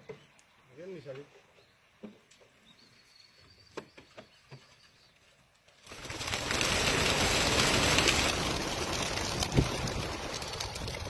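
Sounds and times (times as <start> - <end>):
pigeons flapping wings: 5.8 - 11.0.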